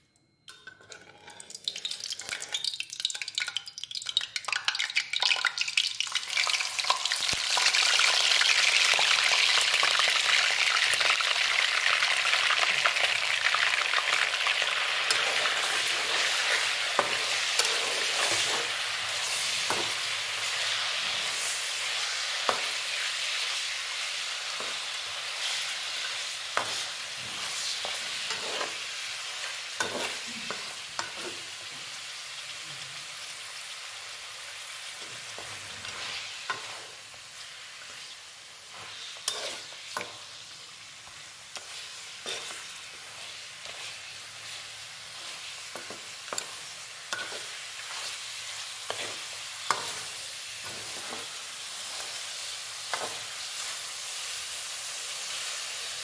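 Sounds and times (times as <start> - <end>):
metal spatula scraping a pan: 0.6 - 2.6, 14.1 - 23.6, 24.4 - 31.6, 35.1 - 37.0, 38.7 - 40.4, 41.6 - 52.2
meat sizzling in hot oil: 1.1 - 56.0.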